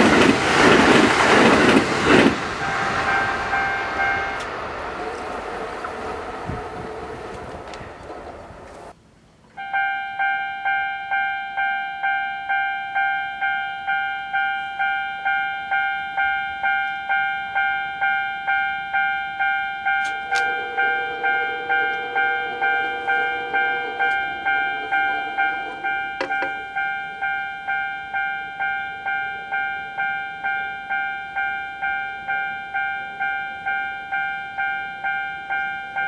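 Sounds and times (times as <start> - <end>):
passing train: 0.0 - 36.0
level crossing warning bell: 1.0 - 7.8, 9.6 - 36.0
lower-pitched bell tone: 2.6 - 4.5, 9.6 - 36.0.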